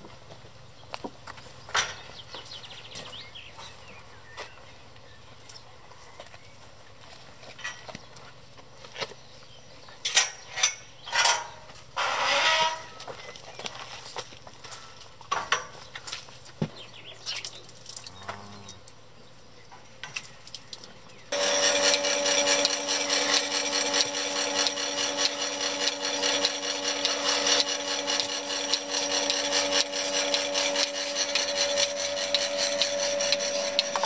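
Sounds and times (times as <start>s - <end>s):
fast rasping rattle: 21.3s - 34.0s
milking machine pump humming: 21.3s - 34.0s.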